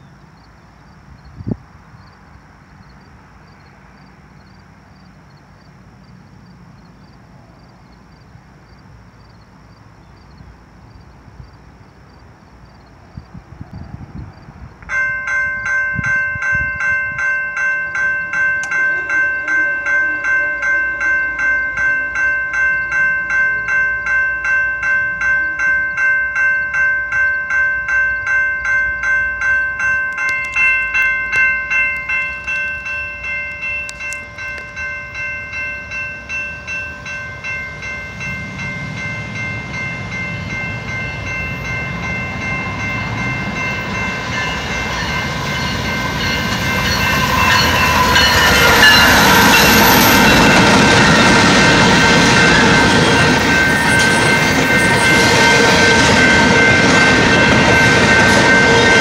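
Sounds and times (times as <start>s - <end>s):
diesel freight train rumble: 0.0s - 59.0s
railroad crossing bell ringing: 14.4s - 59.0s.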